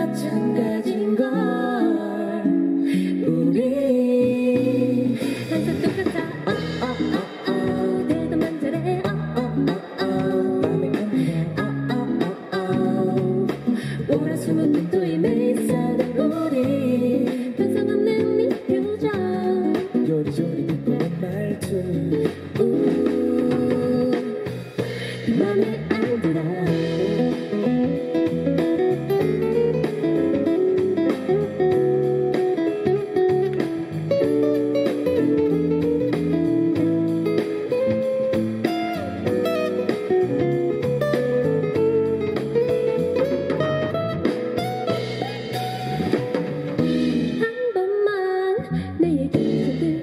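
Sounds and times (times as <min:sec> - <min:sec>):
woman singing: 0:00.0 - 0:43.6, 0:45.9 - 0:50.0
acoustic guitar: 0:00.0 - 0:47.8
stage piano: 0:00.0 - 0:48.4.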